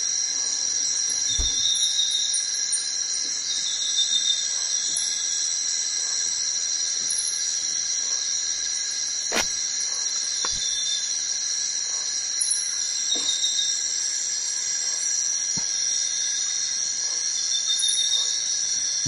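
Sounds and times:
forest insects droning: 0:00.0 - 0:19.0.

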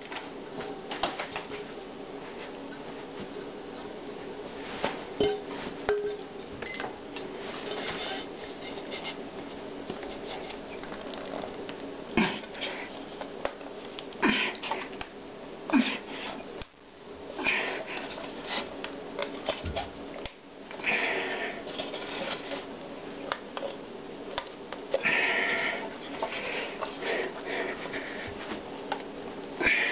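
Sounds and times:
steady low hum: 0:00.0 - 0:29.9.

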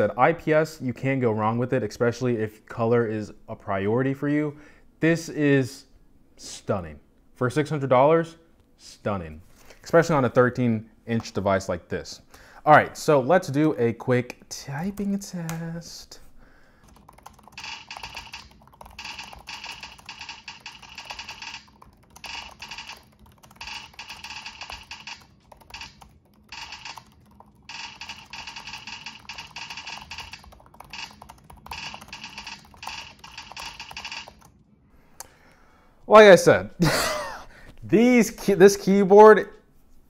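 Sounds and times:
fast typing on laptop keyboard: 0:16.8 - 0:34.6.

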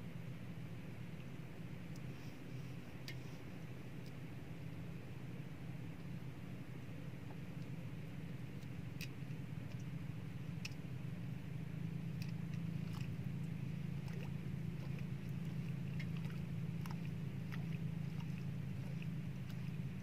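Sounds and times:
boat motor humming: 0:00.0 - 0:20.0
light clicks and taps: 0:03.0 - 0:03.3, 0:08.6 - 0:09.9.

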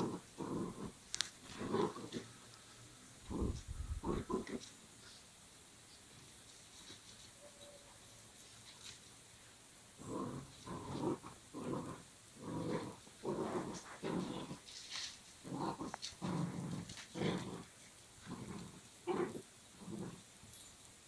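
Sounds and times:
dogs growling in play: 0:00.0 - 0:02.4, 0:03.2 - 0:04.7, 0:10.0 - 0:14.8, 0:15.4 - 0:20.6.

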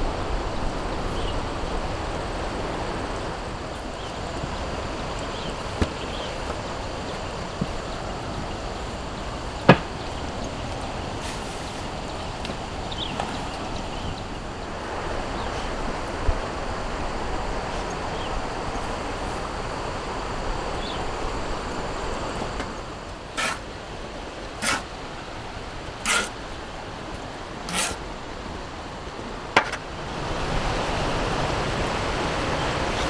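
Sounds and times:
steady rushing noise: 0:00.0 - 0:33.0
shovel scraping wet sand: 0:11.2 - 0:11.9, 0:23.3 - 0:23.8, 0:24.5 - 0:25.0, 0:26.0 - 0:26.4, 0:27.6 - 0:28.1.

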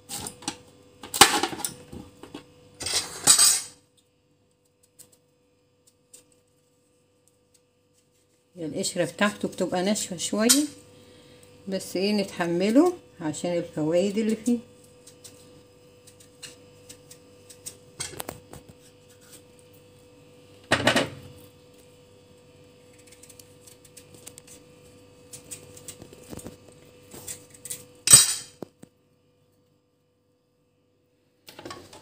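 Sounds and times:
knife scraping squash rind: 0:15.0 - 0:19.6, 0:22.9 - 0:24.6.

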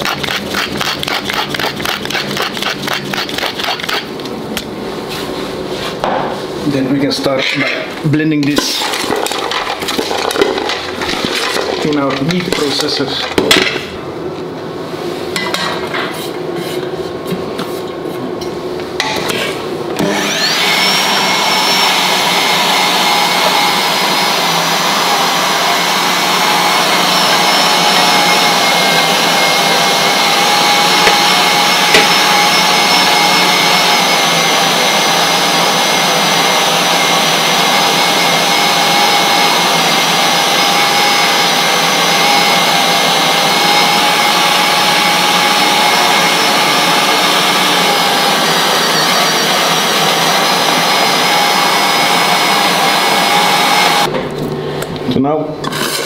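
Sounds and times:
electric meat grinder whining: 0:00.0 - 0:04.2, 0:20.0 - 0:54.1.

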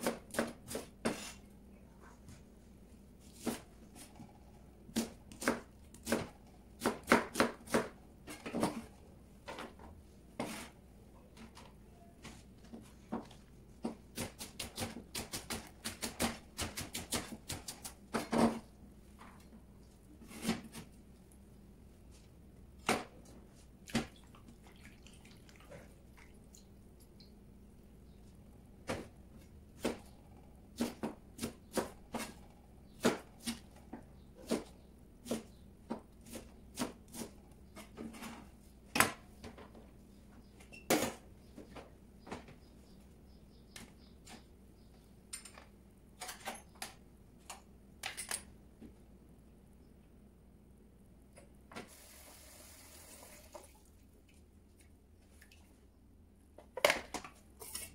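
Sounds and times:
knife chopping on plastic board: 0:04.9 - 0:08.8, 0:13.8 - 0:18.6, 0:30.8 - 0:33.6.

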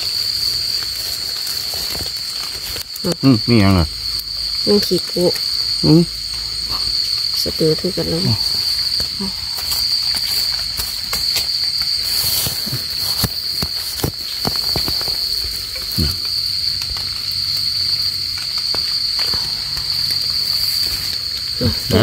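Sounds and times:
high-pitched insect call: 0:00.0 - 0:22.0
hands digging in soil: 0:08.6 - 0:16.6.

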